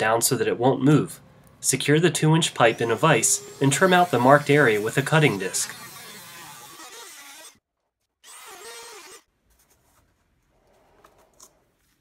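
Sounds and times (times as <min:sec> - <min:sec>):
rotary tool cutting plastic pipe: 0:03.6 - 0:07.6, 0:08.3 - 0:09.3.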